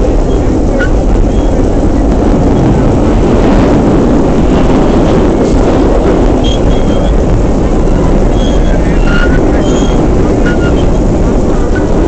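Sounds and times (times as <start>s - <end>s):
train rumbling on rails: 0.0s - 12.0s
high wheel squeals: 0.2s - 1.7s, 6.4s - 7.2s, 7.8s - 11.0s.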